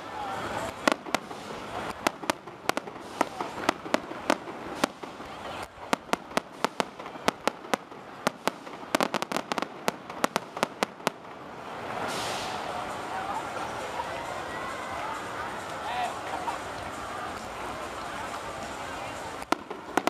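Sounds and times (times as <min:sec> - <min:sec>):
fireworks shells bursting: 0:00.6 - 0:12.7.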